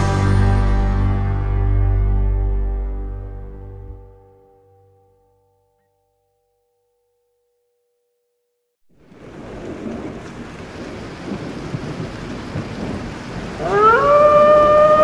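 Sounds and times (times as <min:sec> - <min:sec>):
rumbling thunderstorm noise: 0:09.0 - 0:15.0
wailing rising tone: 0:13.6 - 0:15.0.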